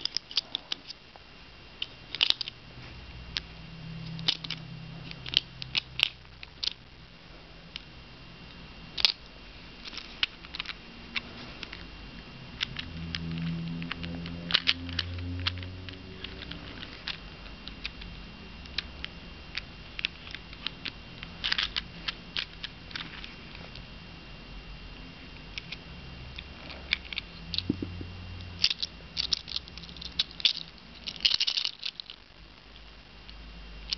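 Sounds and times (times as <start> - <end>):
plastic toy parts clicking: 0.0 - 1.0, 1.8 - 2.5, 4.1 - 4.6, 5.2 - 6.8, 9.8 - 10.8, 12.6 - 18.0, 19.5 - 21.8, 22.4 - 23.3, 28.6 - 32.2
low hum: 0.0 - 31.4.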